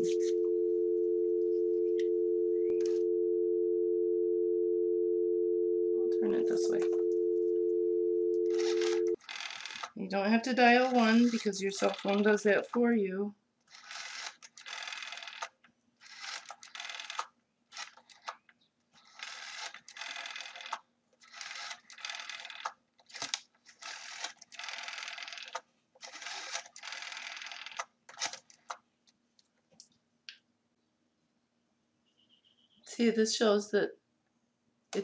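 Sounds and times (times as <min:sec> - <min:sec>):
rotary phone dial whirring: 0:08.4 - 0:10.0, 0:13.7 - 0:18.3, 0:19.0 - 0:28.4.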